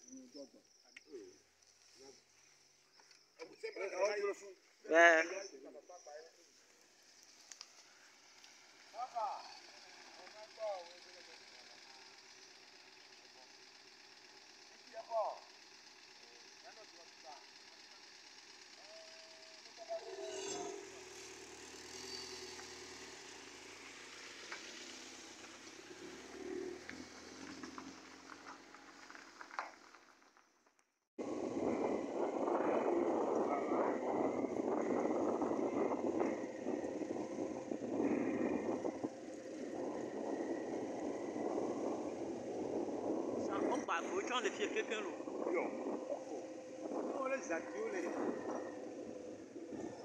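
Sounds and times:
vehicle engine idling: 4.1s - 30.3s, 31.2s - 50.0s
road and wind rumble: 6.7s - 11.1s, 19.8s - 30.4s, 31.2s - 50.0s.

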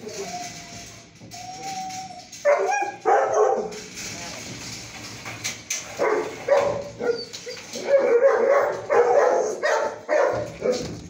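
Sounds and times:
dogs barking and yipping: 1.4s - 3.9s, 5.9s - 11.0s.

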